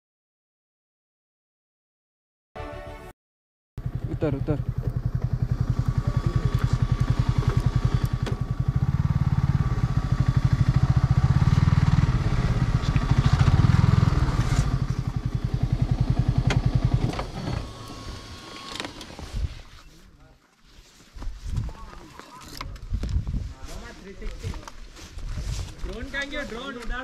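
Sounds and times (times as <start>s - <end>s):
motorcycle engine running: 3.8s - 18.6s.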